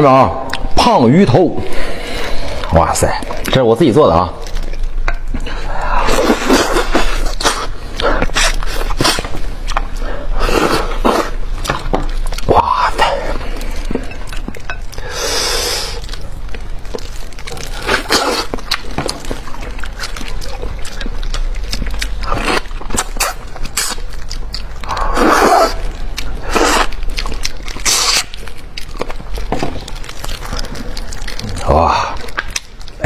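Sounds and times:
person eating with slurping: 5.4 - 9.4, 10.2 - 11.5, 24.8 - 28.4.

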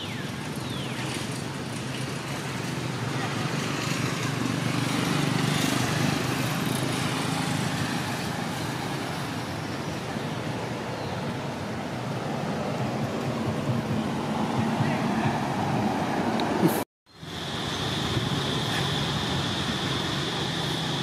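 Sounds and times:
engine hum: 0.0 - 21.0
steady hiss: 17.1 - 21.0.

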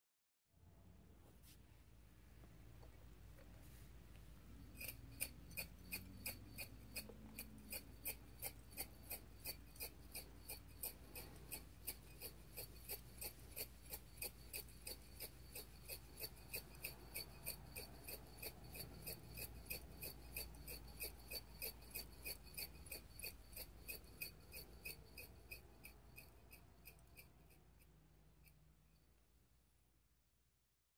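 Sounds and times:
steady mechanical ticking: 4.8 - 28.6.

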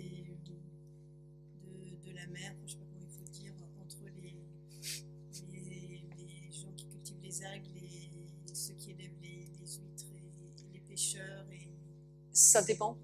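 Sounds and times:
electrical hum: 0.0 - 13.0
faint indistinct speech: 1.6 - 11.7.

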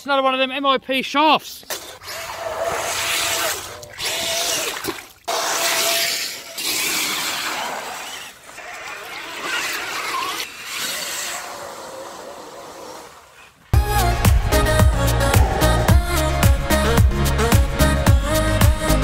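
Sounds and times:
tyres splashing through mud: 1.6 - 13.5
toy truck motor whining: 5.8 - 13.4.

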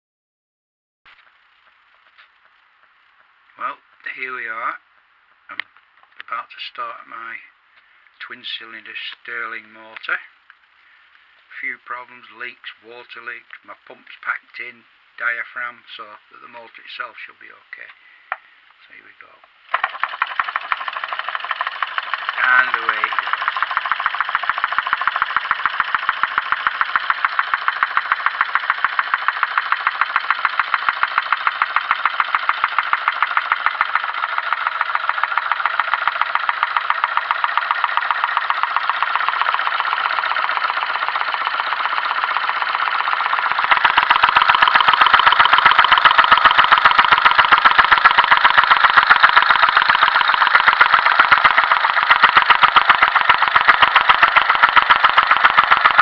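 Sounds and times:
stirling engine clattering: 19.7 - 56.0.

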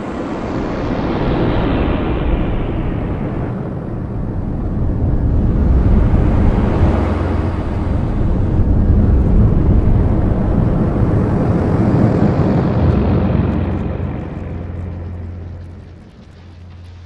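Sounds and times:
steady low hum: 2.4 - 17.0.

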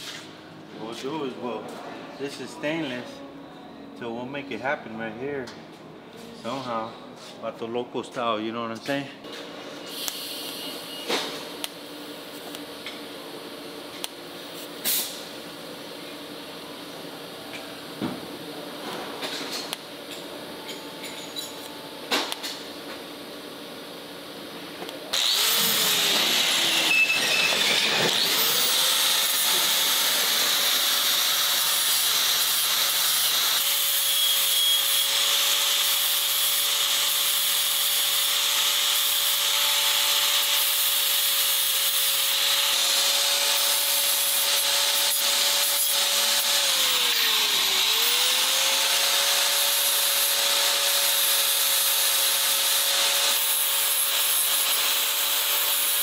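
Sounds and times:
angle grinder grinding steel: 25.1 - 56.0.

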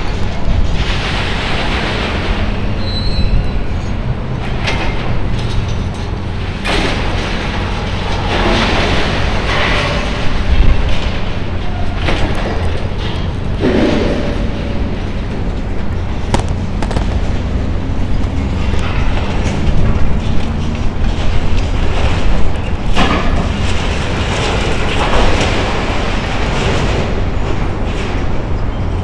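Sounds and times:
debris falling: 0.0 - 2.8, 4.4 - 28.6
crunching and clattering steel: 0.0 - 29.0
excavator diesel engine droning: 11.2 - 22.2.

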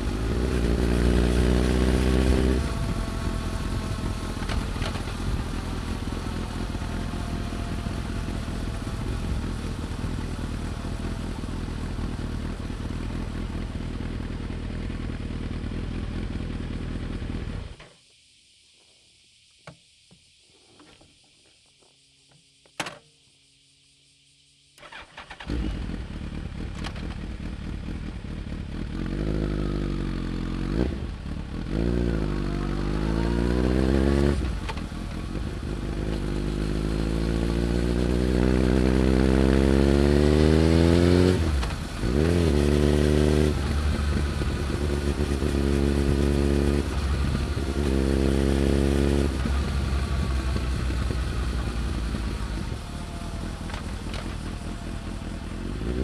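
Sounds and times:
motorcycle engine accelerating: 0.0 - 17.8, 24.8 - 56.0.

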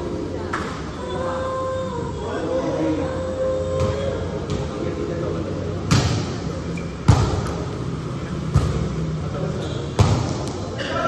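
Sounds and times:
echoing hall background noise: 0.0 - 11.0
volleyball smacks: 10.0 - 10.6.

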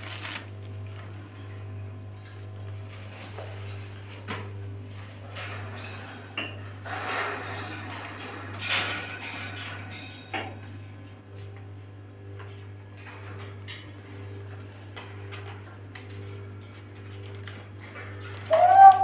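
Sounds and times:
low electrical hum: 0.0 - 19.0
parrot squawk: 18.5 - 19.0.

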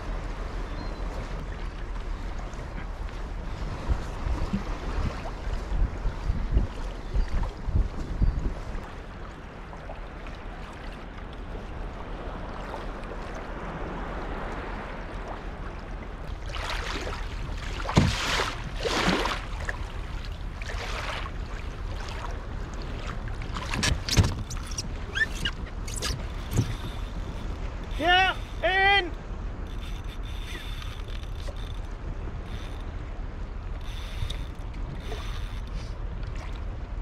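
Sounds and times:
water lapping against kayak hull: 0.0 - 37.0
loud splashes and knocks: 16.5 - 19.8, 23.0 - 24.8.

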